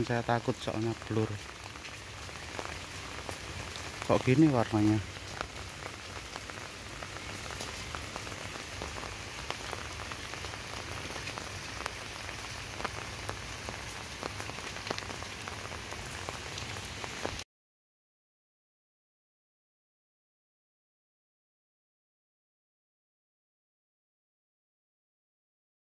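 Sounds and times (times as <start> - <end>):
light rain pattering: 0.0 - 17.4.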